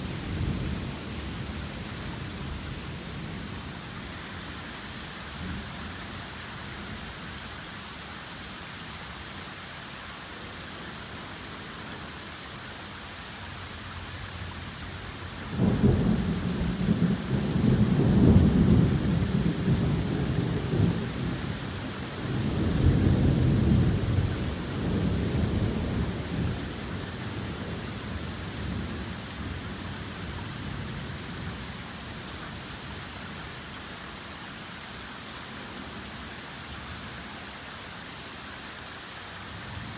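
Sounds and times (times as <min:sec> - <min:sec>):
torrential rain hissing: 0:00.0 - 0:39.9
thunder rumbling: 0:15.5 - 0:21.6.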